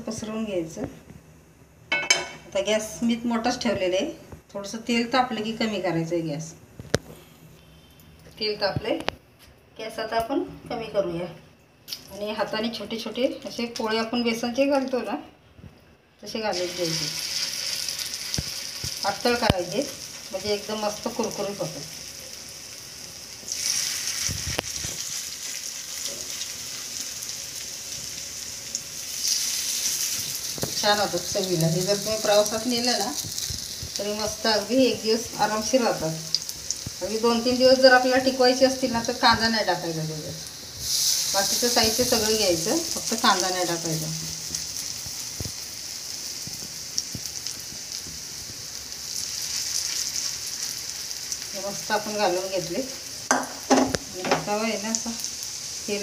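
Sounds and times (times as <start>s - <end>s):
batter sizzling in hot oil: 16.3s - 56.0s.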